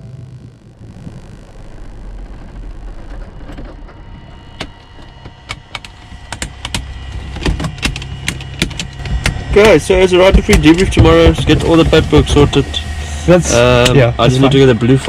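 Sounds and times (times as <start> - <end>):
faint high whine: 0.0 - 15.0
sharp irregular clicks: 4.6 - 11.5
aircraft piston engines idling: 4.9 - 15.0.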